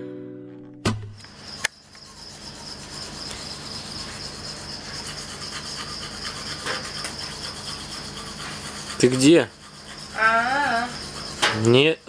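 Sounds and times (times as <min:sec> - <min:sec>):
crickets trilling: 0:01.1 - 0:12.0
toothbrush scrubbing teeth: 0:02.1 - 0:11.4.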